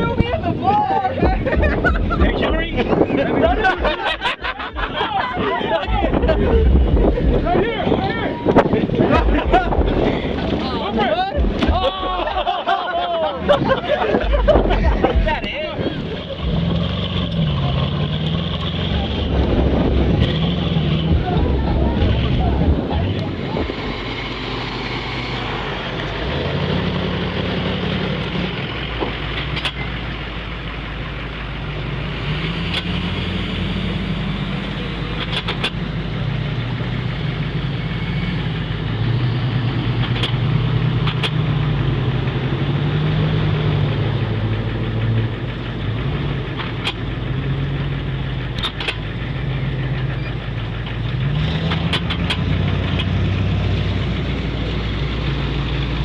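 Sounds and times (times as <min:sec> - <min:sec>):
truck engines driving past: 0:00.0 - 0:56.0
sharp clicks: 0:35.1 - 0:35.8, 0:40.0 - 0:41.5.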